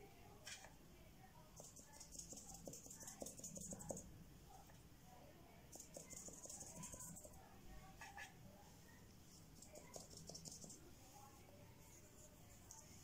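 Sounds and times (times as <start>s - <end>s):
paintbrush brushing on paper: 1.6s - 4.7s, 5.8s - 13.0s.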